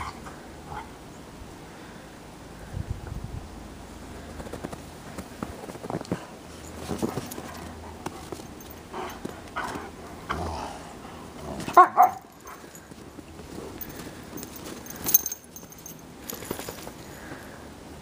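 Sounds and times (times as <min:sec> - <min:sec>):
dogs scuffling in snow: 0:05.2 - 0:09.8, 0:11.6 - 0:15.1, 0:15.7 - 0:17.6
dog barks: 0:11.7 - 0:12.3.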